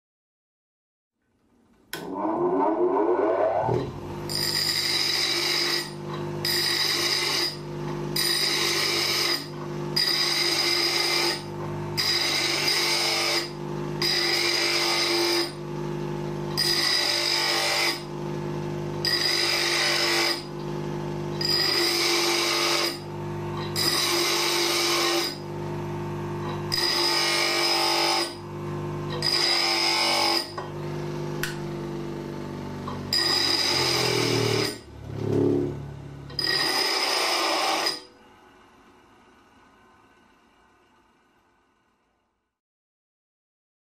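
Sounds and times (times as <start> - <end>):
bench grinder motor hum: 1.9 - 42.2
metal grinding on wheel: 2.0 - 15.6, 16.5 - 18.1, 19.0 - 20.5, 21.3 - 25.4, 26.6 - 28.4, 29.1 - 30.7, 32.8 - 38.1.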